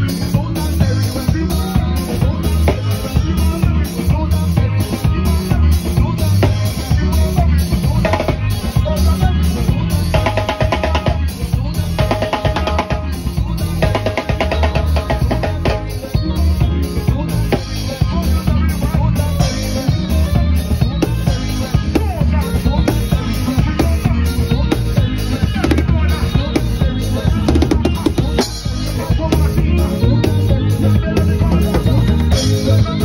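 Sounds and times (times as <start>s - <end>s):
drum kit beat: 0.0s - 33.0s
electric bass line: 0.0s - 33.0s
live band playing: 0.0s - 33.0s.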